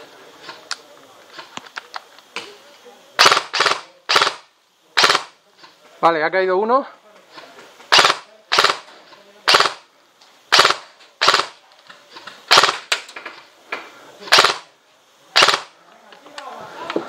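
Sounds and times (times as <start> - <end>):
airsoft gun shots: 3.2 - 5.4, 7.9 - 8.9, 9.5 - 9.8, 10.5 - 11.6, 12.5 - 13.1, 14.3 - 14.7, 15.4 - 15.7.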